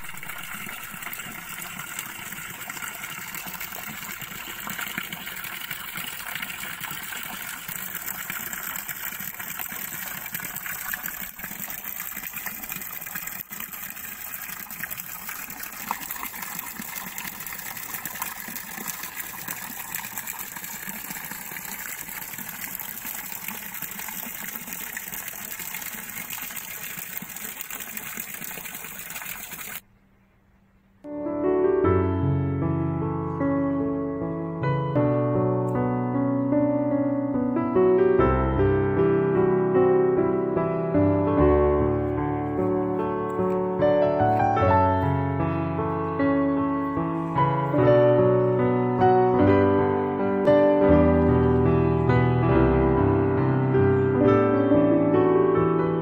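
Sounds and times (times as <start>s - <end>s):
running water: 0.0s - 29.9s, 40.9s - 52.1s.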